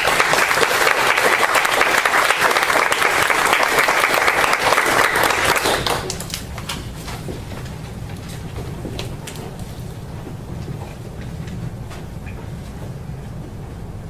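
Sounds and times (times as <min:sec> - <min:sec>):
audience applauding: 0:00.0 - 0:06.9.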